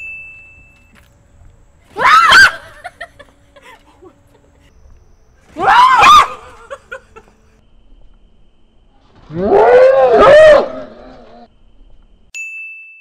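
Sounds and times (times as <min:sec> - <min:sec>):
woman screaming: 0:01.9 - 0:02.9, 0:05.6 - 0:06.8
woman laughing: 0:02.2 - 0:04.7, 0:06.4 - 0:07.5.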